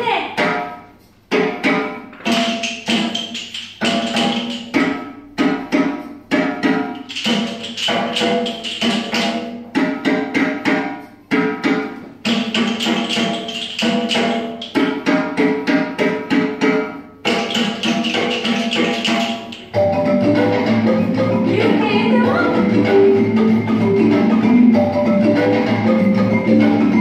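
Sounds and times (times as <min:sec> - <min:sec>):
wood block percussion beat: 0:00.0 - 0:27.0
pitched melody: 0:17.3 - 0:27.0.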